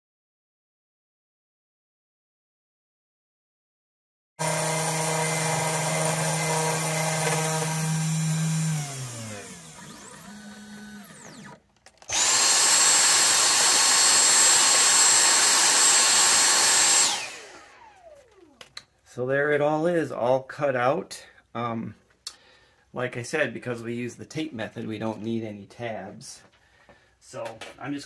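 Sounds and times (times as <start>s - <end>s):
vacuum cleaner with high whine: 4.4s - 18.6s
router spindle motor running: 4.4s - 18.7s.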